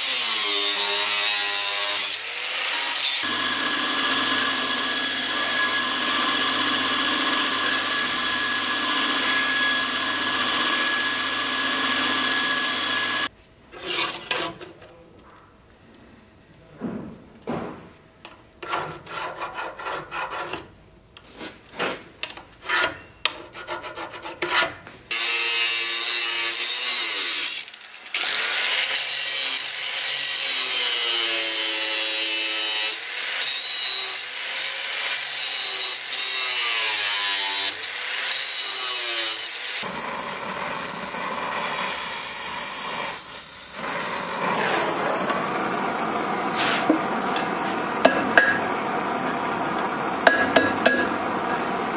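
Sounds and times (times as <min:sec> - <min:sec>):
angle grinder cutting steel: 0:00.0 - 0:13.3, 0:25.1 - 0:51.9
hand scraping sheet steel: 0:18.6 - 0:20.7, 0:21.3 - 0:24.8, 0:39.8 - 0:45.7, 0:46.4 - 0:51.7
steady rushing torch noise: 0:39.9 - 0:51.9.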